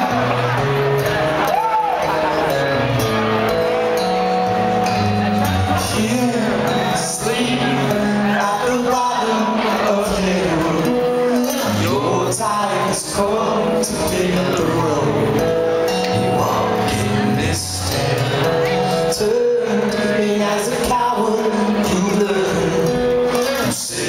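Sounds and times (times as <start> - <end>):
drums: 0.0 - 9.4
acoustic guitars: 0.0 - 24.0
man singing: 5.6 - 24.0.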